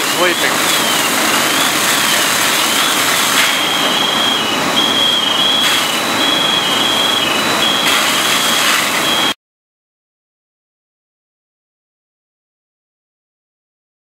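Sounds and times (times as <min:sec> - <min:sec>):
electronic warning tone: 0:00.0 - 0:09.4
fire engines running: 0:00.0 - 0:09.4.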